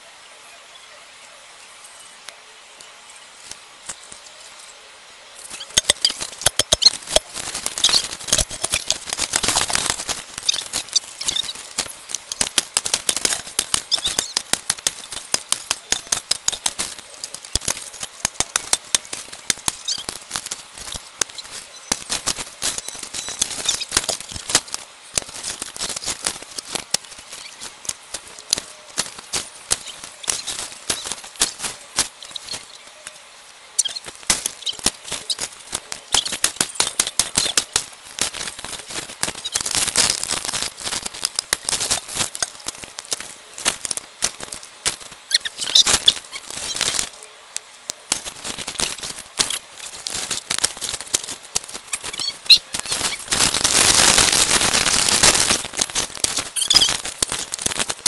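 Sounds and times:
sticks scraping through dry leaves: 5.4s - 33.2s, 33.8s - 47.2s, 47.8s - 58.0s.

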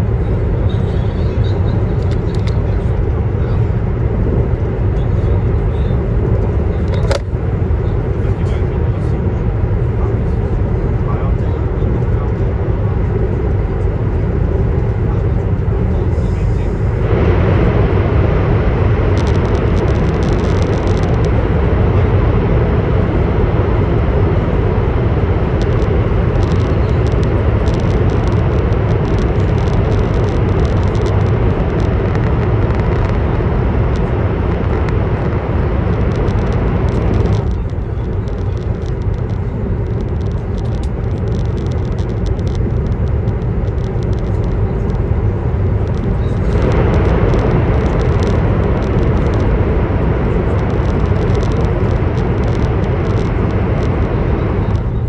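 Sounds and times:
train low rumble: 0.0s - 55.0s.

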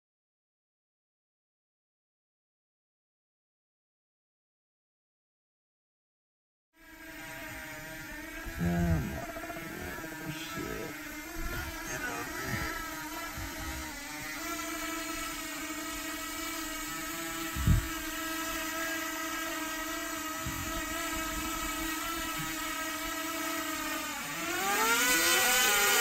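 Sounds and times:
drone propellers whining: 7.1s - 26.0s.

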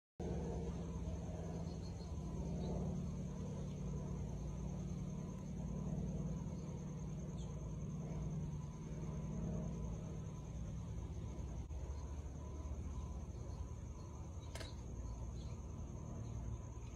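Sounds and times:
high-pitched whine: 0.2s - 16.9s
low outdoor rumble: 0.2s - 16.9s.

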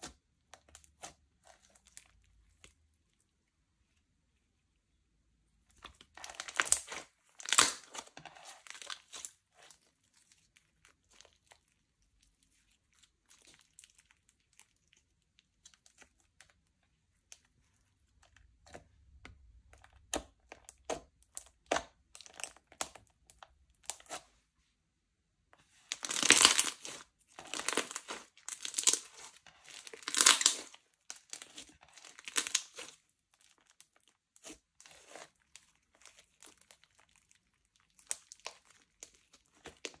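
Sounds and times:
slime crackling and popping: 5.7s - 16.6s, 25.9s - 40.0s.

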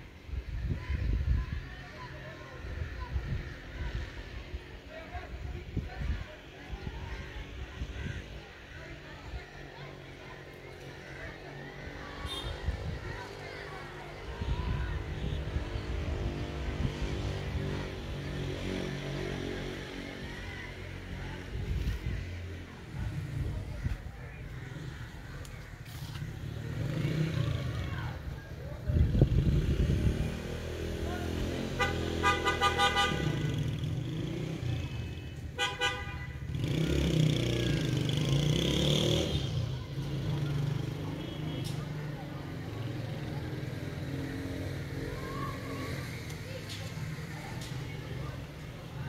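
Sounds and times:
street traffic engine rumble: 0.0s - 49.0s
vehicle horn beeps: 12.2s - 12.7s.

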